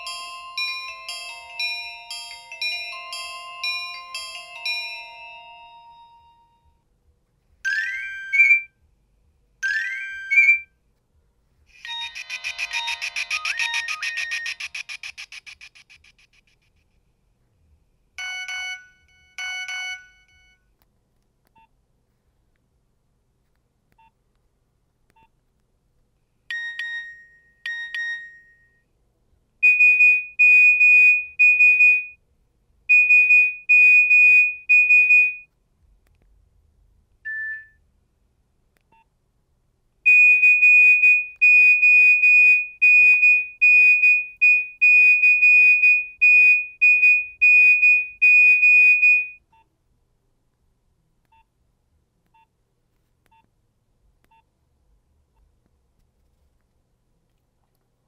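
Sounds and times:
rapid trilling high beeps: 11.8s - 16.3s
pitched phone notes: 11.8s - 16.6s.

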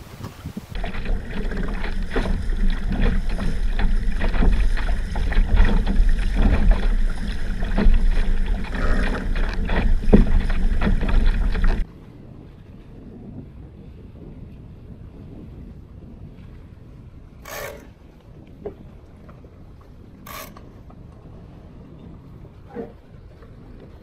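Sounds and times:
wind buffeting microphone: 0.0s - 24.0s
water slapping against hull: 0.7s - 11.9s.

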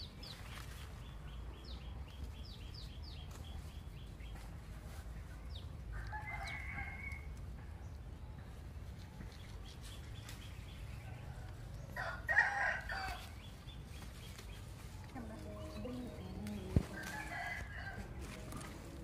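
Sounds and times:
chickens chirping: 0.0s - 19.0s
rooster crowing: 5.9s - 7.3s, 11.2s - 13.3s, 16.9s - 18.5s.

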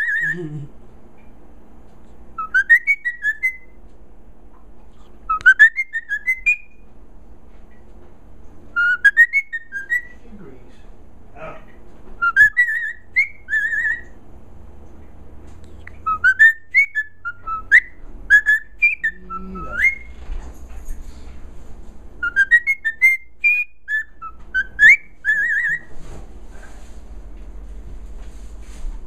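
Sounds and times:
cockatiel whistling: 0.0s - 0.4s, 2.4s - 3.8s, 5.0s - 6.8s, 8.7s - 10.2s, 12.2s - 14.2s, 15.7s - 20.2s, 22.2s - 25.9s.

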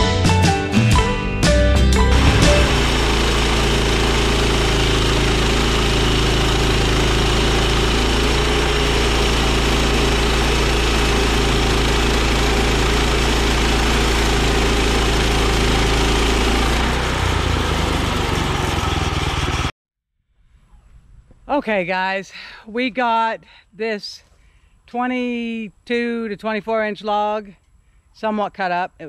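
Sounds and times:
sawmill engine running: 1.8s - 19.7s.

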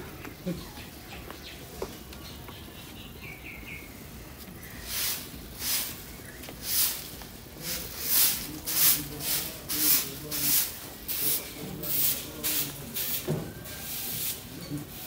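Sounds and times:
broom sweeping earth: 4.2s - 15.0s.

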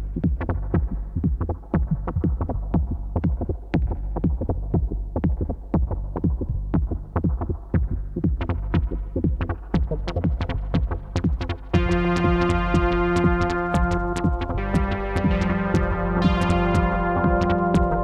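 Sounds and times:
electronic dance music: 8.7s - 18.0s.

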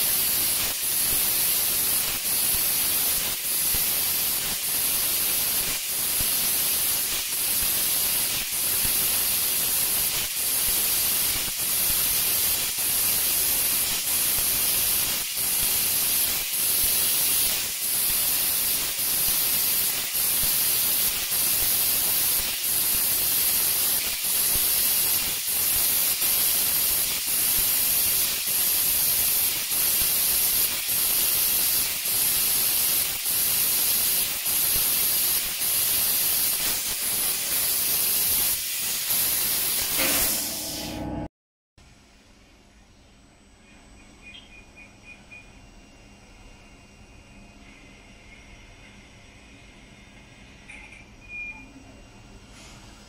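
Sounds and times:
laser cutter gas hiss: 0.0s - 41.3s.

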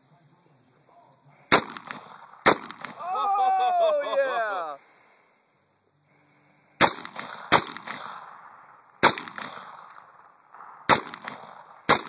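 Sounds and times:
rifle shots echoing: 1.5s - 3.0s, 6.8s - 12.0s.

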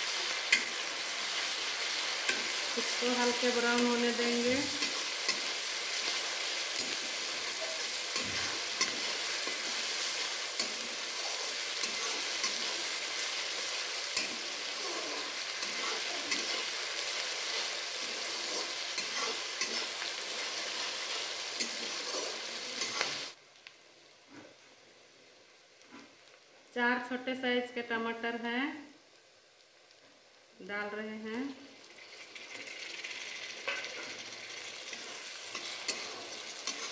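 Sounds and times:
onions sizzling in hot oil: 0.0s - 36.9s
metal spatula scraping pan: 6.7s - 23.3s, 33.6s - 36.9s.

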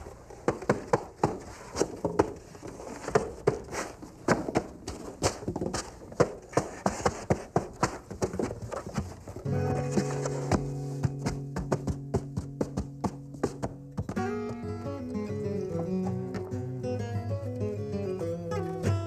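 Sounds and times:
insulation boards tapping and knocking: 0.4s - 14.8s
background music: 9.5s - 19.0s.

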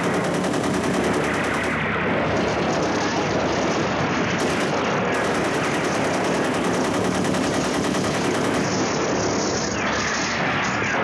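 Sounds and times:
machine-gun fire: 0.0s - 1.8s, 4.4s - 9.0s.

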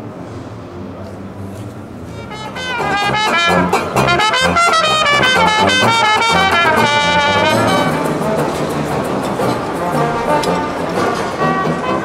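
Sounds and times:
banjo: 1.5s - 12.0s
brass band playing a tune: 2.1s - 12.0s
pulsing sousaphone bass line: 2.2s - 9.1s.

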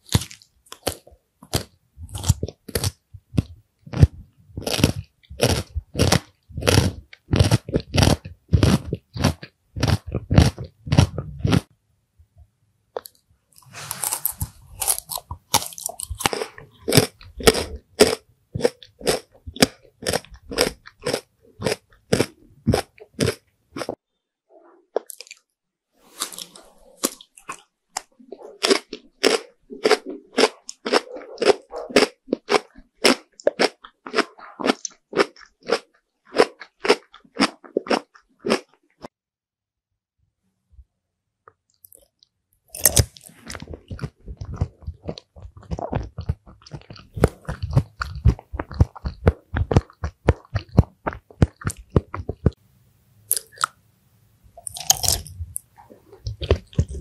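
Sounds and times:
chewing crunchy food: 0.0s - 11.7s, 13.0s - 24.0s, 24.9s - 25.5s, 26.1s - 39.1s, 41.7s - 52.6s, 53.3s - 53.8s, 54.6s - 57.0s.

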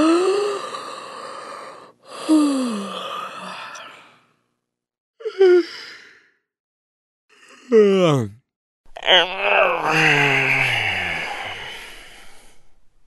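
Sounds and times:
person yawning: 9.0s - 12.3s.

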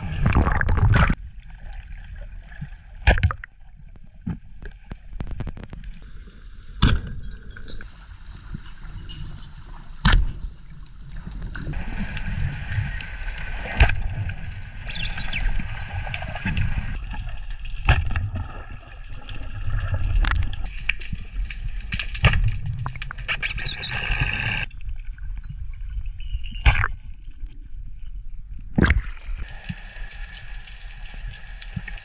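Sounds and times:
water rushing and gurgling: 6.0s - 21.4s.

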